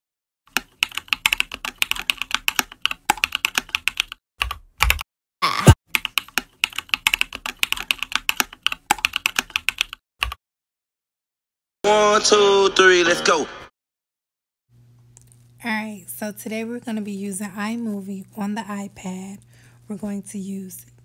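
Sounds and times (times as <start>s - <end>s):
keyboard typing: 0.5s - 5.0s, 5.9s - 10.4s.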